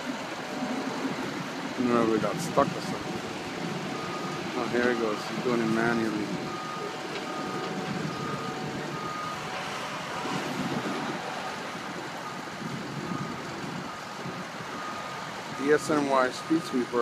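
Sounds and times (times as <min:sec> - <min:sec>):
street sweeper engine running: 0:00.0 - 0:17.0
backup alarm beeping: 0:02.0 - 0:11.3, 0:12.2 - 0:16.9.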